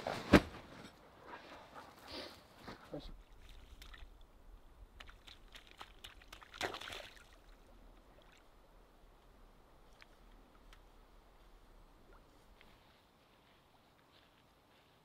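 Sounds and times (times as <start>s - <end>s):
dog wading through shallow water: 3.1s - 9.0s
faint water drip: 3.1s - 12.8s.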